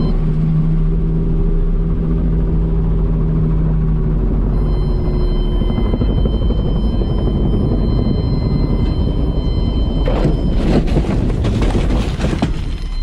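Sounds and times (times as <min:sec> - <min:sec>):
helicopter rumble inside cockpit: 0:00.0 - 0:13.0
skids scraping through dry grass: 0:10.5 - 0:13.0.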